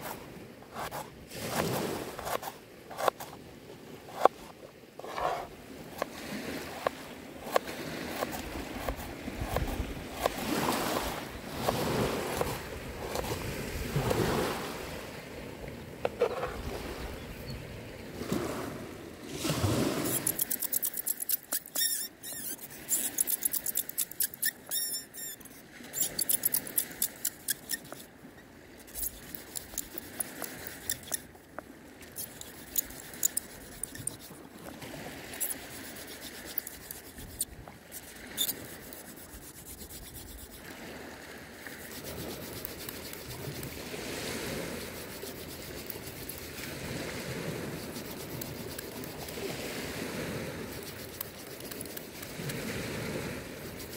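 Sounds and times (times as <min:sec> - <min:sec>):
hand drill grinding and squeaking: 0:20.0 - 0:28.1, 0:28.8 - 0:31.4, 0:32.0 - 0:34.4, 0:35.3 - 0:40.6, 0:41.6 - 0:43.8, 0:44.8 - 0:46.6, 0:47.8 - 0:49.4, 0:50.6 - 0:52.6, 0:53.6 - 0:53.9.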